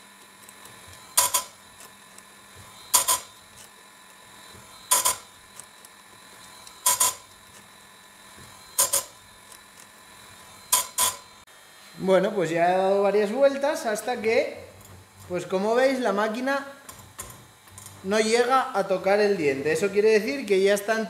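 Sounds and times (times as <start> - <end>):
motor hum: 0.0 - 21.0
grinding disc on chain tooth: 0.3 - 4.2, 4.8 - 7.7, 8.7 - 9.9.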